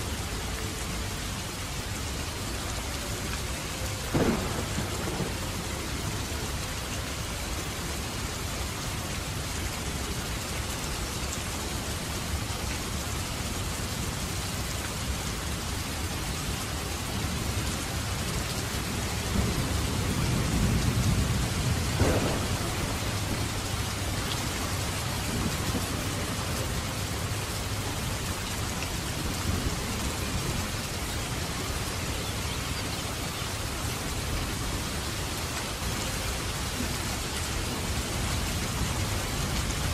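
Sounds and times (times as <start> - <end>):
heavy rain falling: 0.0 - 39.9
thunder rolling: 4.1 - 5.8, 19.2 - 26.6.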